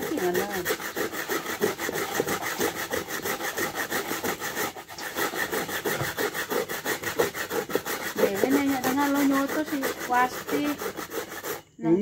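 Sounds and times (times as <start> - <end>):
coconut grating scrapes: 0.0 - 12.0.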